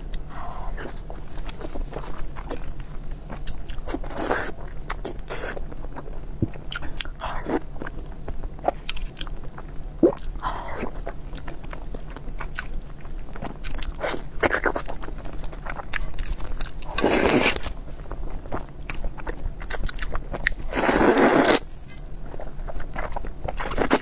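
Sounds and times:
chewing with wet mouth clicks: 2.3s - 8.0s, 8.6s - 16.9s, 17.5s - 20.8s
slurping noodles: 16.8s - 17.7s, 20.7s - 21.7s.

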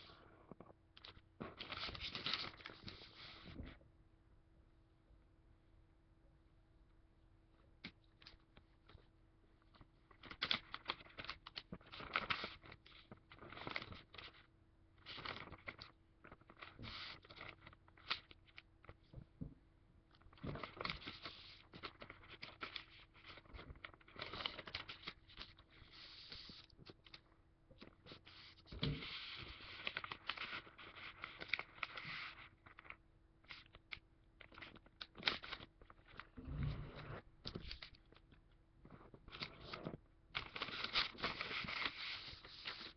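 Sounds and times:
paper crinkling and rustling: 0.5s - 3.6s, 9.7s - 19.1s, 20.1s - 27.2s, 27.8s - 42.9s.

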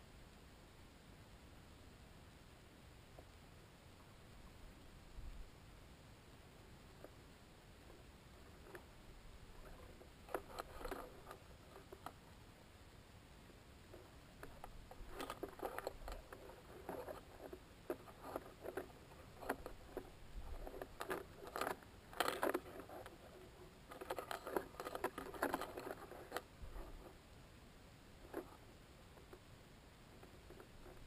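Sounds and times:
scratching and clicking: 7.9s - 12.3s, 13.9s - 27.2s, 28.2s - 29.5s, 30.1s - 31.0s.

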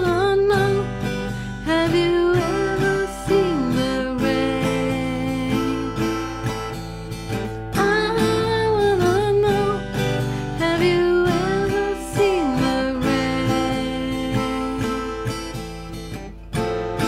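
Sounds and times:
strummed acoustic guitar: 0.0s - 17.0s.

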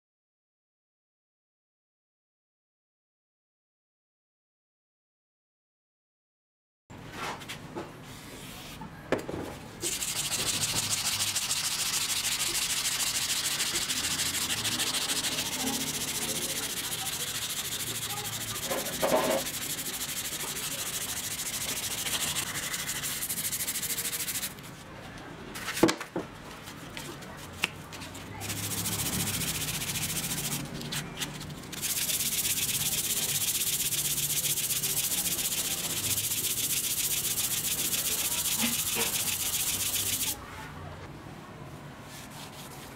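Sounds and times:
hand-sanding metal: 9.8s - 24.6s, 28.4s - 30.8s, 31.7s - 40.4s.

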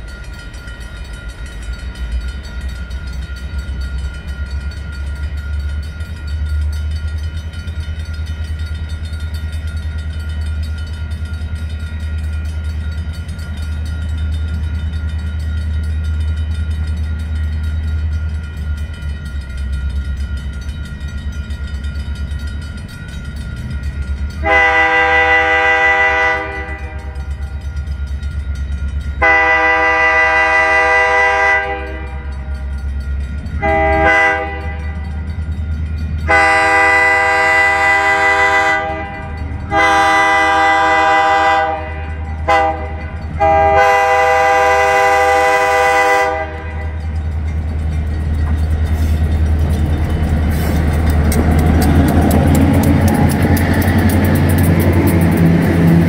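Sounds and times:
low train rumble: 0.0s - 56.0s
locomotive air horn blasts: 24.4s - 27.2s, 29.2s - 32.3s, 33.6s - 35.0s, 36.3s - 47.0s.

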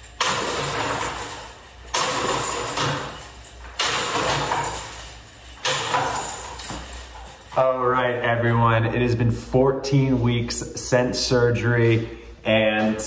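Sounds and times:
metallic chain rattle: 0.0s - 7.9s.

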